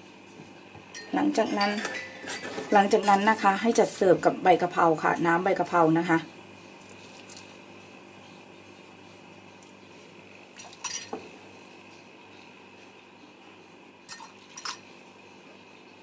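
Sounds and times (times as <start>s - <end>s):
metal ladle clinking on pot and mug: 1.0s - 3.4s.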